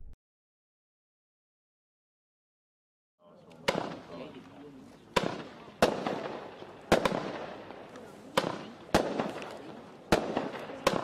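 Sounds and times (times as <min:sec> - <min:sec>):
firework bangs: 0:03.6 - 0:04.2, 0:05.1 - 0:11.0.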